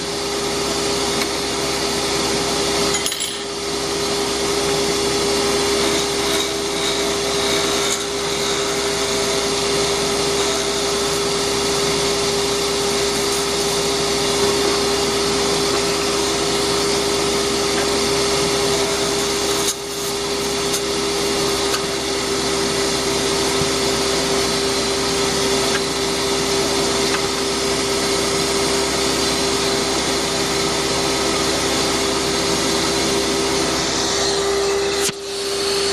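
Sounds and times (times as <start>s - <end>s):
motor hum: 2.4s - 27.4s.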